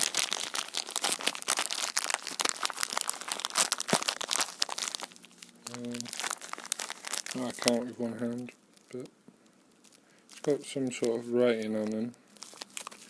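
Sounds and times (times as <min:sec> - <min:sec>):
plastic bag crinkling: 0:00.0 - 0:13.0.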